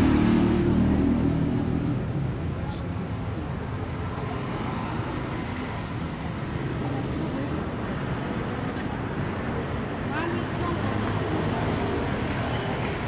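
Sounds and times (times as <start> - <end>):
crowd chatter: 2.0 - 13.0.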